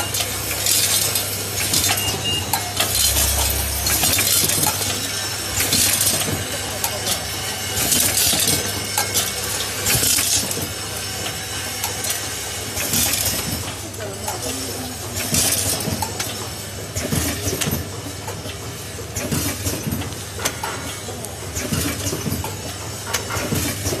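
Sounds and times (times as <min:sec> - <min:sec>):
machine electric hum: 0:00.0 - 0:15.8.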